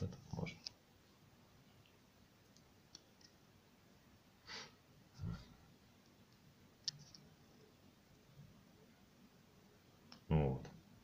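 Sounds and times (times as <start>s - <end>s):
person breathing: 4.4s - 5.6s.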